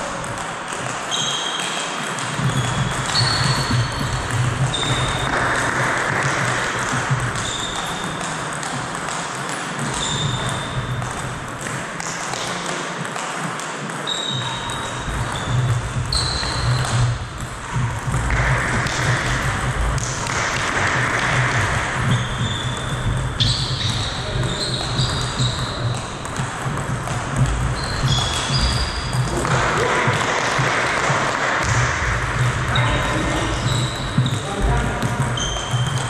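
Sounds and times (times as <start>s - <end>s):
table tennis ball pinging: 0.0s - 36.0s.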